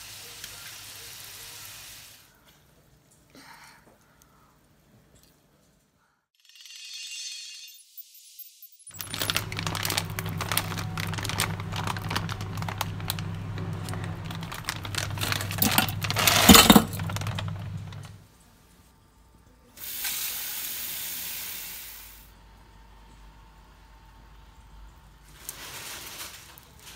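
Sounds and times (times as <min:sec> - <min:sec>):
frozen shrimp clattering into saucepan: 0:08.9 - 0:18.2
plastic bag crinkling: 0:08.9 - 0:18.2, 0:25.4 - 0:26.9.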